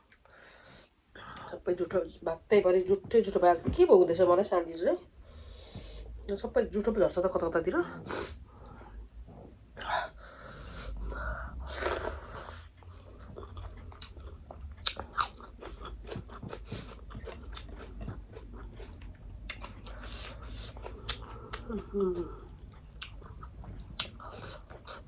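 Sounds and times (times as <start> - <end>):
crunchy chewing of fried food: 11.7 - 25.0.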